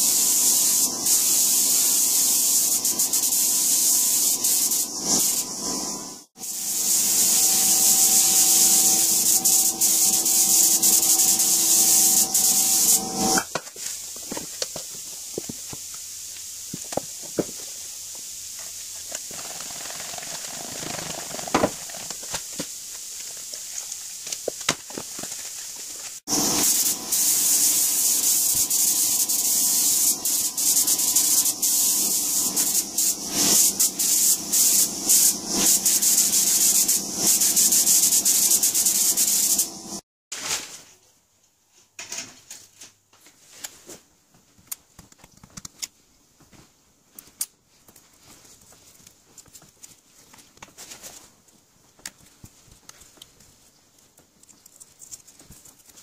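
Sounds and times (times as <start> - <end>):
spray gun hissing: 0.0 - 13.4, 26.2 - 40.0
foil crinkling: 19.0 - 26.2, 48.2 - 56.0.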